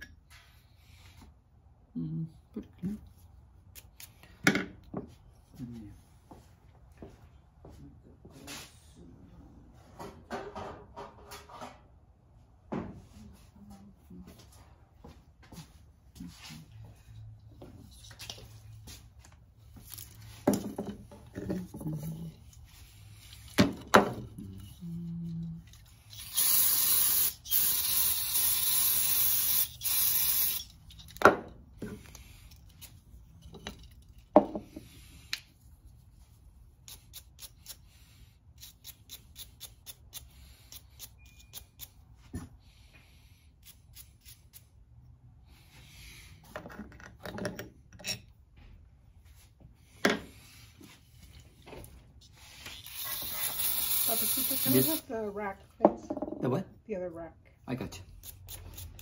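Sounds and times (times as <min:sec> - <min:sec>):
aerosol spray can hissing: 0:26.2 - 0:30.7, 0:52.7 - 0:55.1
metal parts clinking: 0:30.5 - 0:31.2.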